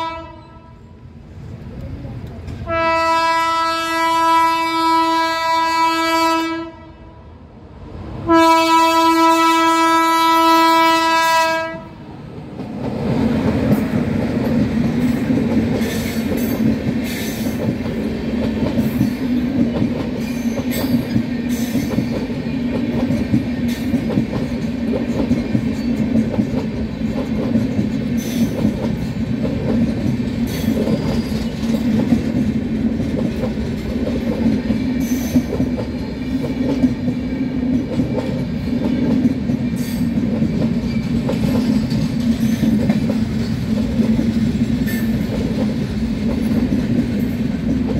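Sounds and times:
train horn: 0:00.0 - 0:01.1, 0:02.6 - 0:07.4, 0:08.2 - 0:12.0
train rumbling past: 0:00.0 - 0:47.9.

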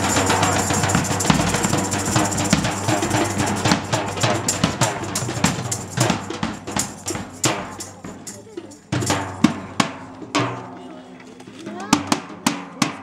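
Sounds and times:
large drum strikes: 0:00.0 - 0:08.2, 0:09.0 - 0:10.9
hand drums playing: 0:00.0 - 0:13.0.

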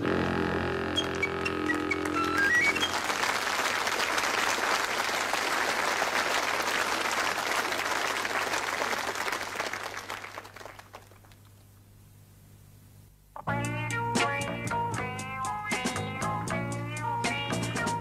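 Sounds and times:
audience applauding: 0:01.0 - 0:11.6.

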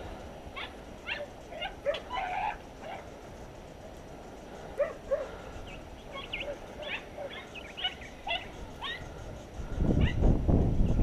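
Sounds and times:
dogs yelping: 0:00.5 - 0:03.1, 0:04.8 - 0:05.4, 0:06.0 - 0:09.2, 0:10.0 - 0:10.2.

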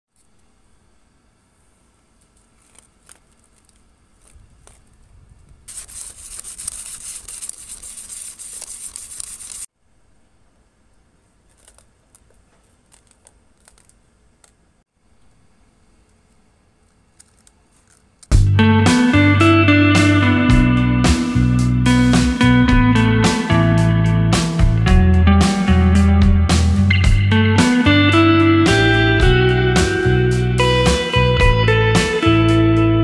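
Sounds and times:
sandpaper rasping on plastic cup: 0:05.7 - 0:09.7
guitar music: 0:18.3 - 0:33.0.

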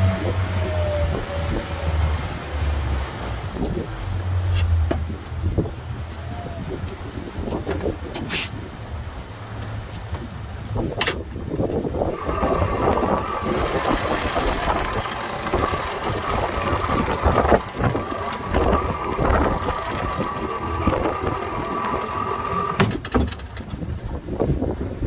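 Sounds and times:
boat motor running: 0:00.0 - 0:07.9, 0:11.3 - 0:23.1
wind buffeting microphone: 0:00.0 - 0:25.0.

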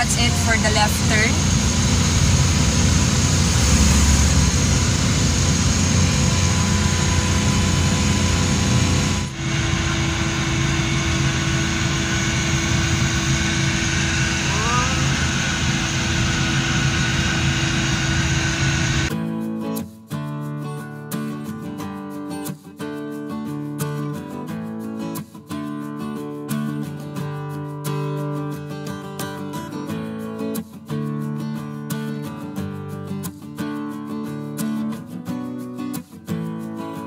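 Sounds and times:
van engine and road noise: 0:00.0 - 0:19.1
acoustic guitar music: 0:19.1 - 0:37.0.

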